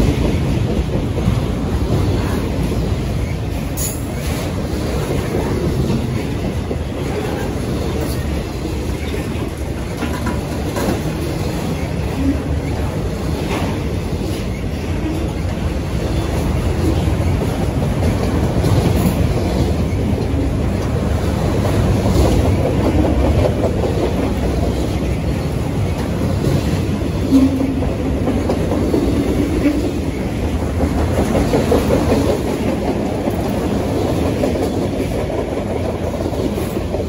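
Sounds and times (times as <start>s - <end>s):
clickety-clack over rail joints: 0.0s - 37.0s
train wheels rumbling on rails: 0.0s - 37.0s.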